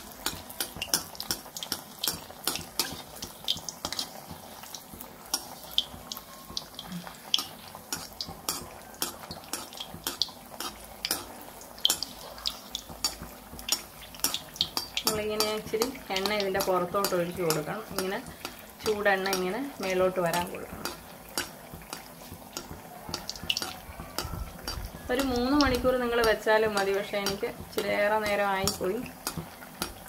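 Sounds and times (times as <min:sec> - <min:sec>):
food sizzling in hot oil: 0:00.0 - 0:30.0
metal skimmer scraping pan: 0:05.2 - 0:30.0.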